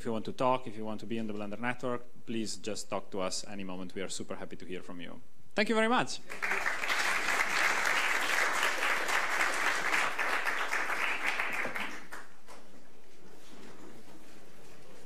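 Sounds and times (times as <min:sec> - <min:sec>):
audience applauding: 0:06.3 - 0:12.4.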